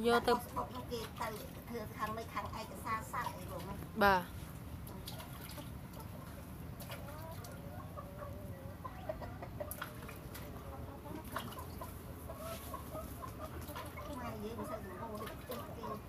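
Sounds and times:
chickens clucking: 4.6 - 16.0.

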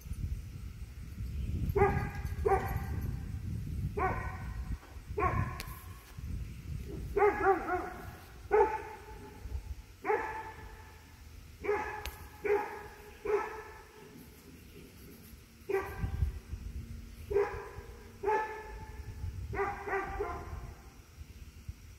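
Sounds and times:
dog barking: 1.8 - 2.9, 4.0 - 4.5, 5.2 - 5.7, 7.2 - 9.4, 10.0 - 10.8, 11.6 - 13.8, 15.7 - 16.1, 17.3 - 18.8, 19.5 - 20.7.

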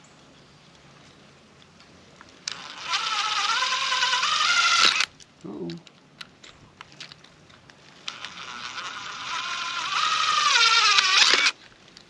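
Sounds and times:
power drill motor whine: 2.5 - 5.1, 8.0 - 11.6.

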